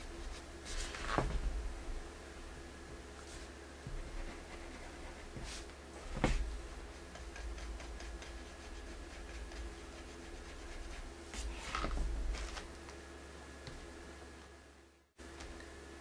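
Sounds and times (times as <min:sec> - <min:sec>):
brush scuffing: 0:03.0 - 0:03.6.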